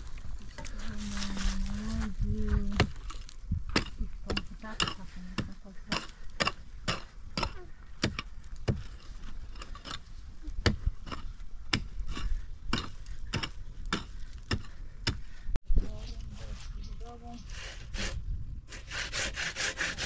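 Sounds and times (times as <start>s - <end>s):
chopping strikes on wood: 2.7s - 8.9s.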